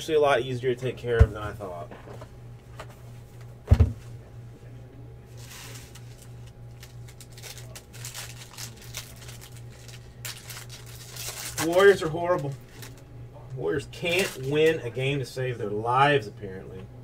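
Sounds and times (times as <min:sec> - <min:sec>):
box thumping on a table: 0:03.6 - 0:04.0
foil packs crinkling: 0:05.4 - 0:13.0, 0:13.9 - 0:14.8.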